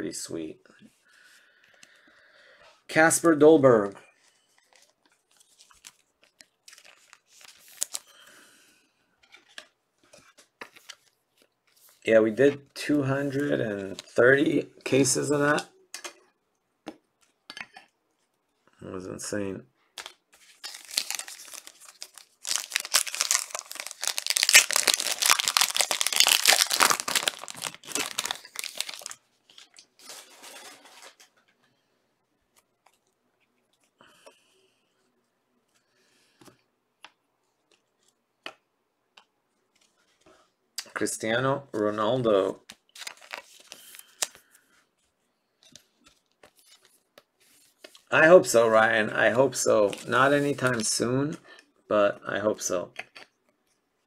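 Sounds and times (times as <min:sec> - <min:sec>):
cards sliding rustle: 0:04.2 - 0:08.0, 0:43.0 - 0:44.6
plastic wrapper tearing and crackling: 0:05.4 - 0:08.1, 0:20.0 - 0:31.2, 0:42.9 - 0:44.4.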